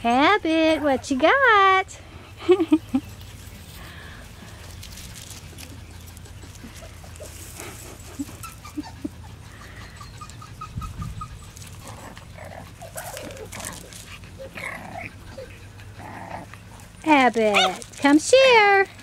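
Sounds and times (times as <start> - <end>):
puppies whimpering: 5.2 - 17.9.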